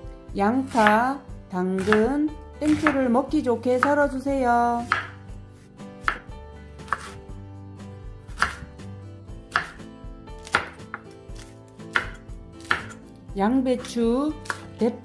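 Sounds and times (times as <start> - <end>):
knife chopping on cutting board: 0.6 - 1.1, 1.8 - 3.2, 3.8 - 4.2, 4.8 - 7.2, 8.3 - 8.7, 9.5 - 13.1, 14.4 - 14.8.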